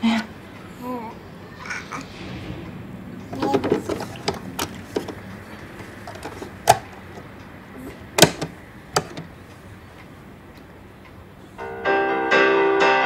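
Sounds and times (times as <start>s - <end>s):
plastic boombox lid clicks: 6.1s - 6.9s, 8.2s - 9.3s.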